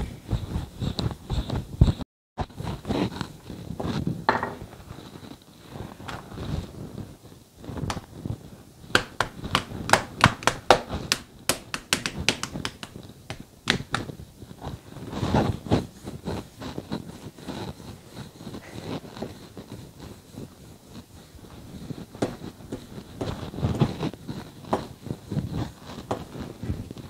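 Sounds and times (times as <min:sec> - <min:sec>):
rolling pin rolling dough: 0:00.0 - 0:27.0
sharp taps and clicks: 0:09.0 - 0:14.1.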